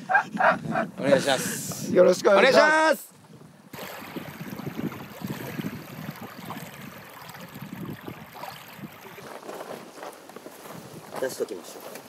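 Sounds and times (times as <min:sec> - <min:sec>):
small waves lapping on pebbles: 0:03.8 - 0:11.0.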